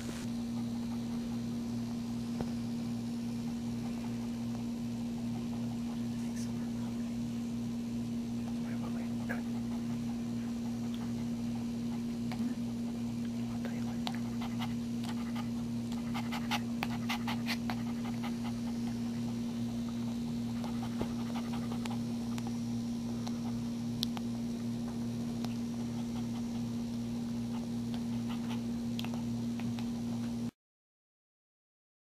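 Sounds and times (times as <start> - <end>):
dog panting: 0.0 - 1.6, 5.2 - 6.5, 8.4 - 23.8, 25.5 - 30.2
steady low hum: 0.0 - 30.5.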